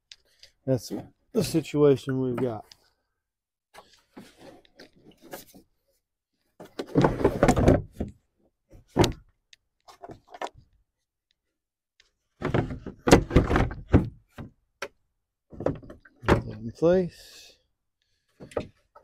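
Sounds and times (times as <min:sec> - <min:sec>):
plastic tank scraping: 0:06.6 - 0:08.1.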